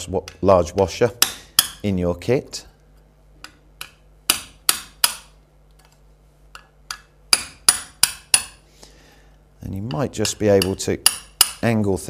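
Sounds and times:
hammer tapping metal punch: 0.0 - 1.9, 3.4 - 5.4, 6.5 - 8.6, 9.8 - 11.7.

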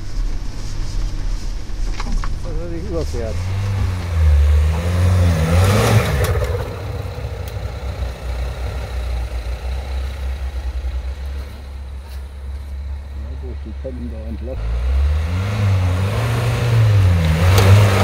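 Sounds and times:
off-road vehicle engine revving: 1.7 - 18.0.

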